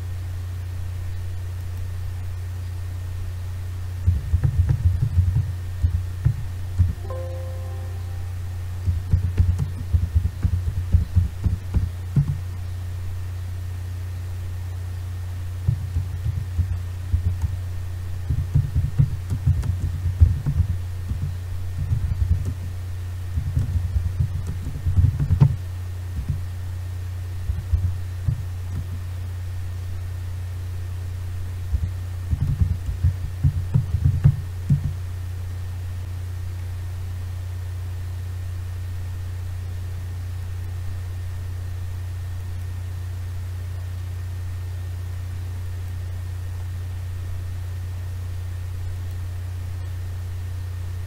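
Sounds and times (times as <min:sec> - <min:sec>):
low electrical hum: 0:00.0 - 0:51.0
keyboard typing thumps: 0:04.1 - 0:07.0, 0:08.9 - 0:12.4, 0:15.7 - 0:17.6, 0:18.3 - 0:22.6, 0:23.4 - 0:25.6, 0:26.2 - 0:26.4, 0:27.5 - 0:28.9, 0:31.7 - 0:35.0.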